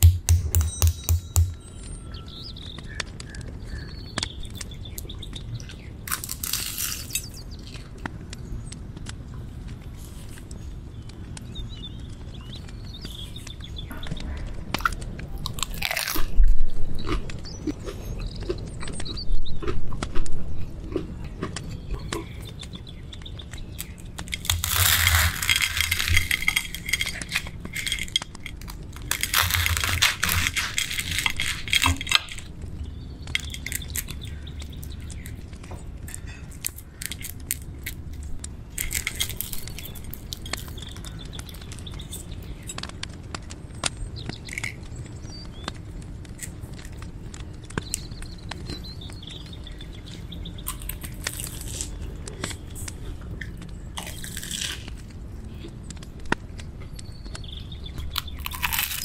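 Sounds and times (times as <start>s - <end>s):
crust crackling: 0.0s - 59.0s
knife crunching through fried crust: 6.1s - 7.3s, 14.8s - 16.4s, 23.8s - 32.5s, 36.1s - 42.3s, 50.7s - 55.0s, 58.1s - 59.0s.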